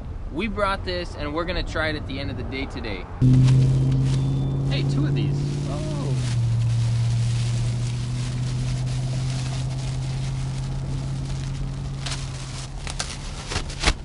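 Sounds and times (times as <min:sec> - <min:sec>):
low motor hum: 0:03.2 - 0:13.3
plastic wrapping crinkling: 0:05.5 - 0:14.0.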